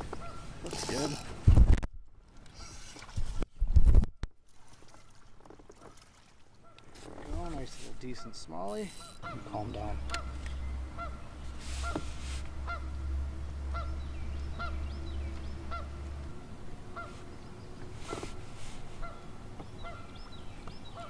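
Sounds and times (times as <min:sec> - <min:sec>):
goose honking: 0:08.1 - 0:13.0, 0:15.7 - 0:16.0, 0:16.9 - 0:17.2
low hum: 0:09.0 - 0:20.6.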